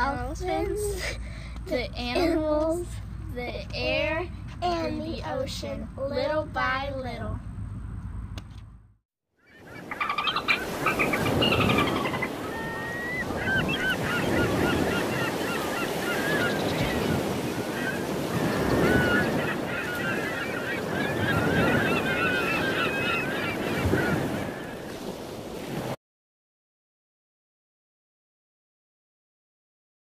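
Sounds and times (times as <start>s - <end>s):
ocean water washing in swells: 9.6s - 26.0s.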